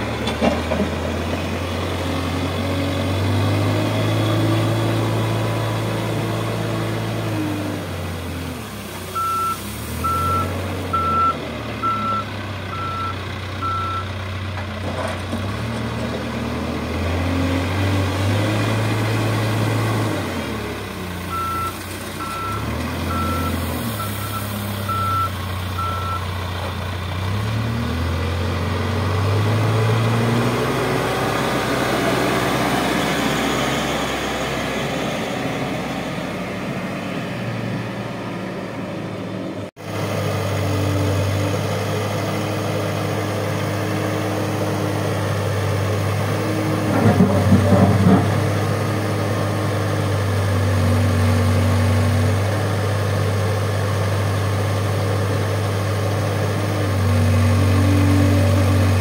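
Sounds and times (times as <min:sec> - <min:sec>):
diesel engine running: 0:00.0 - 0:59.0
reversing alarm beeps: 0:09.2 - 0:14.0, 0:21.3 - 0:26.2.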